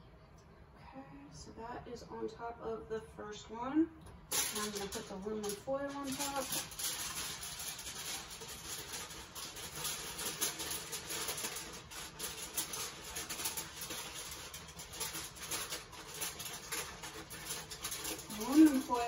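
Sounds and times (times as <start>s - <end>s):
aluminum foil crinkling: 4.3s - 19.0s.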